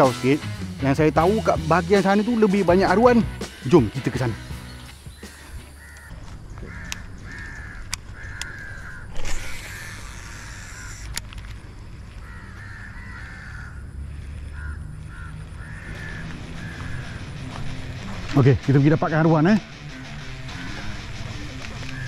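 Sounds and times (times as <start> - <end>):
crows cawing: 4.4 - 11.2, 12.1 - 22.0.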